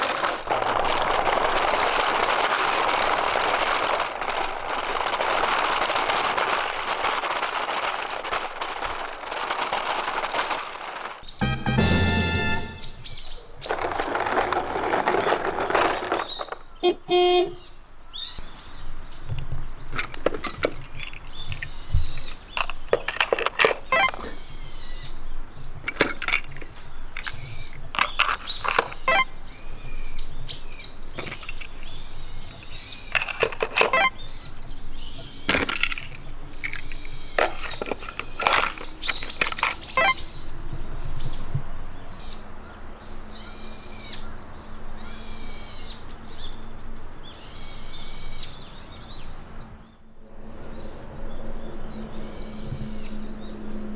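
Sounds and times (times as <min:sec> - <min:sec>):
birds calling: 0:26.5 - 0:50.1
toy cars knocking on plastic case: 0:35.5 - 0:40.2.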